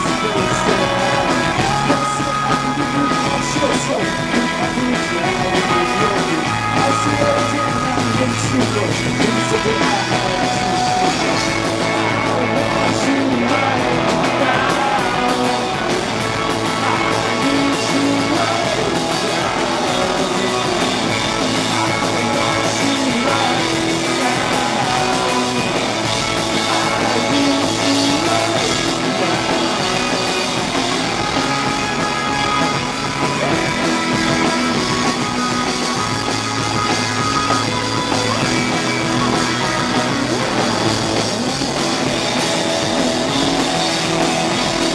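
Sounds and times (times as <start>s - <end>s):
man singing into microphone: 0.0s - 16.1s, 16.7s - 25.9s, 26.5s - 30.4s
bass guitar: 0.0s - 44.9s
drum kit: 0.0s - 44.9s
electric guitars: 0.0s - 44.9s.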